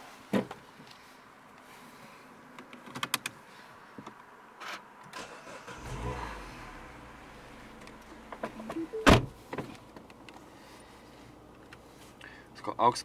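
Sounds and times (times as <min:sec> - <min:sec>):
car engine starting and idling: 0:05.1 - 0:10.3.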